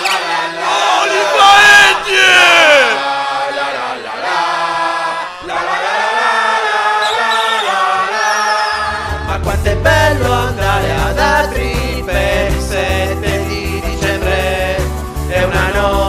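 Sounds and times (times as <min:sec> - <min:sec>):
voices chanting: 0:00.0 - 0:16.0
music with heavy bass: 0:09.0 - 0:16.0.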